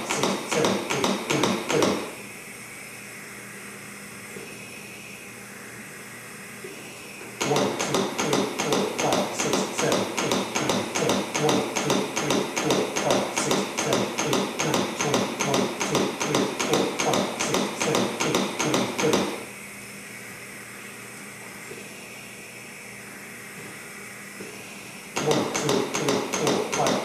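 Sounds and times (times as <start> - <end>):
chest compression knocks: 0.0 - 2.1, 7.4 - 19.4, 25.2 - 27.0
faint room hum: 0.0 - 27.0.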